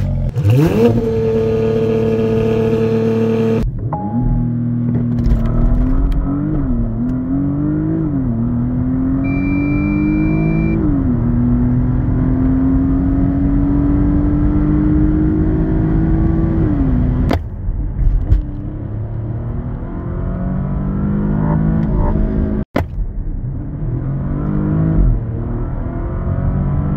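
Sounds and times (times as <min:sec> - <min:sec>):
car engine accelerating: 0:00.0 - 0:26.9
high electronic beep: 0:04.0 - 0:04.8, 0:09.2 - 0:10.9.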